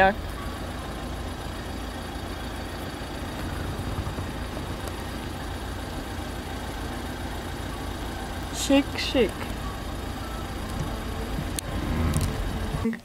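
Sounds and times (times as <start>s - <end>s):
van engine idling: 0.0s - 13.0s.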